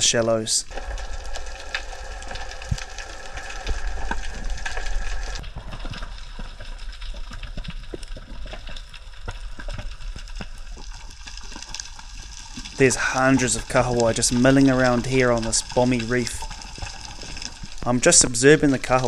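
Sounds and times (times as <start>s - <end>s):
faint hum: 0.0s - 5.4s
crackling clicks: 0.1s - 19.0s
underwater rumble: 0.6s - 19.0s.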